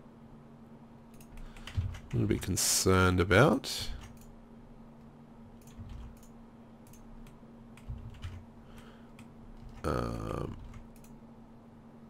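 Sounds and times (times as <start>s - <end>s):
steady low hum: 0.0s - 12.0s
computer keyboard keys tapped: 1.1s - 2.5s, 3.9s - 4.3s, 5.6s - 9.9s, 10.5s - 11.2s.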